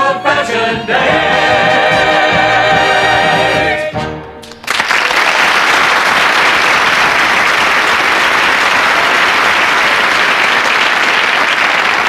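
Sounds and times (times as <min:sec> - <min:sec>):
audience applauding: 0:04.5 - 0:12.0.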